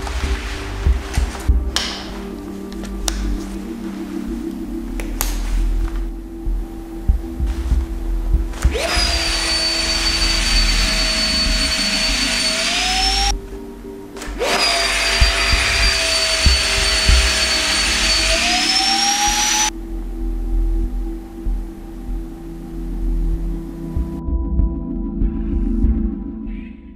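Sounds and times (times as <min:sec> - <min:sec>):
electric fan whining: 0:00.0 - 0:19.7.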